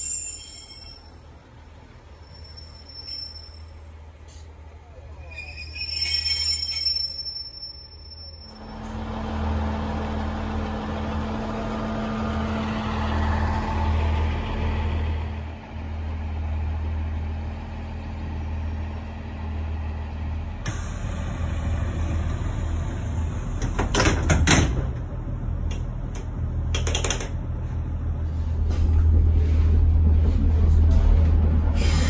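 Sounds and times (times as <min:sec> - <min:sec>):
high-pitched squeal: 0:05.2 - 0:08.8
diesel engine running: 0:08.5 - 0:32.0.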